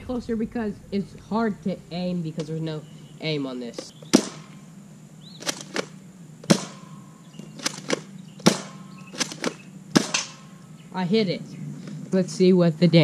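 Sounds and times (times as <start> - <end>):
toy blaster firing sharp shots: 4.1 - 4.6, 5.4 - 7.0, 7.6 - 10.5.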